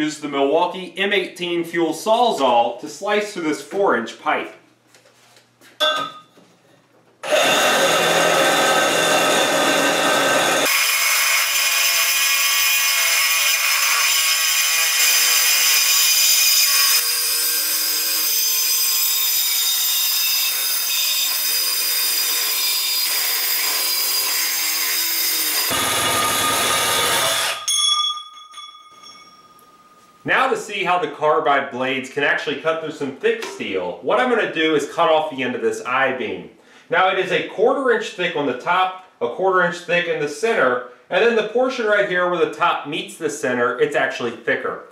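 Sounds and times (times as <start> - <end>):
metal pipe ringing: 5.8 - 6.4, 27.5 - 30.3
reciprocating saw cutting steel pipe: 7.2 - 27.8.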